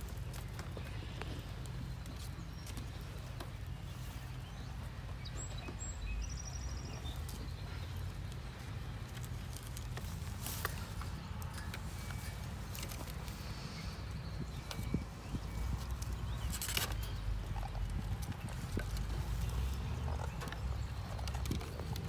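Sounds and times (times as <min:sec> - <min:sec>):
claws scraping on wire and wood: 0:15.6 - 0:22.0.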